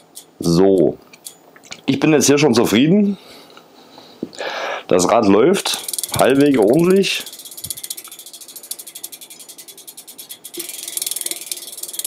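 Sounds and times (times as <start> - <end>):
bicycle freewheel ticking: 0.0 - 0.6, 5.6 - 12.0.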